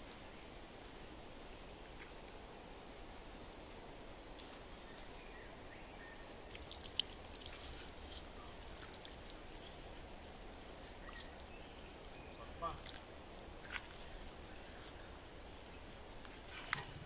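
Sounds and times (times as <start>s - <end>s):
water splashes: 6.5s - 9.4s, 11.0s - 13.4s
water trickling into plant pot: 6.5s - 10.3s, 10.9s - 14.8s.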